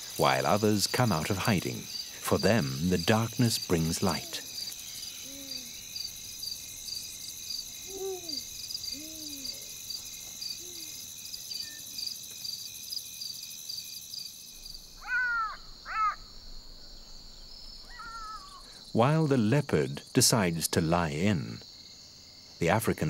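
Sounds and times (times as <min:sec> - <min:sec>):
crickets chirping: 0:00.0 - 0:23.0
low hooting calls: 0:14.9 - 0:16.9, 0:17.8 - 0:18.8
harsh animal calls: 0:15.0 - 0:16.4, 0:17.9 - 0:18.8.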